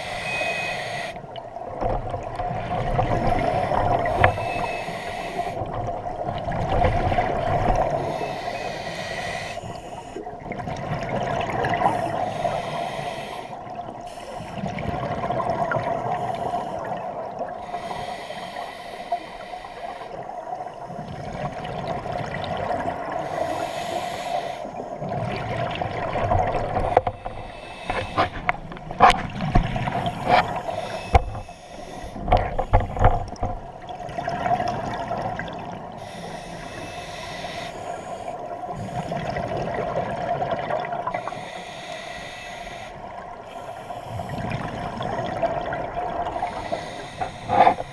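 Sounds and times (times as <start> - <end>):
regulator inhale hiss: 0.0 - 1.2, 3.3 - 5.7, 7.9 - 10.2, 11.8 - 14.7, 16.1 - 16.9, 17.6 - 20.3, 23.2 - 24.8, 26.8 - 28.5, 29.9 - 33.1, 35.9 - 39.2, 41.2 - 45.0, 46.2 - 47.9
exhaled bubbles rushing: 10.4 - 12.2, 25.0 - 27.0, 33.7 - 35.9, 39.0 - 41.2
sharp knocks and clicks: 32.2 - 33.6.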